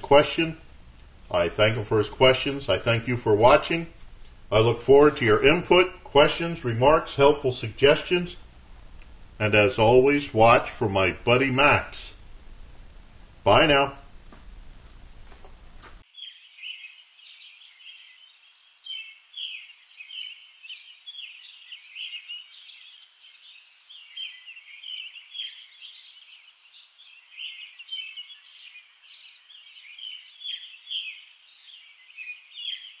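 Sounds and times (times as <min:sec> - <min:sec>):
songbirds chirping: 0:00.0 - 0:14.0, 0:16.0 - 0:33.0.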